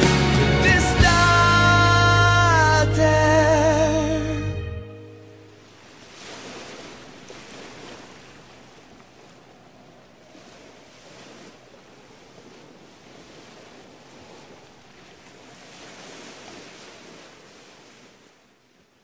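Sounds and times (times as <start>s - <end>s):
sea waves washing onto beach: 5.5s - 19.0s.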